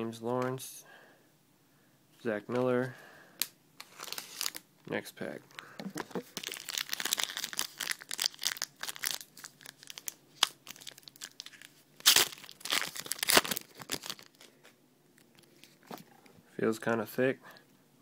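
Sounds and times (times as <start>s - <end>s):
card pack wrapper crinkling: 3.8s - 4.6s, 5.5s - 14.6s
wrapper ripping: 3.8s - 4.6s, 6.0s - 14.6s.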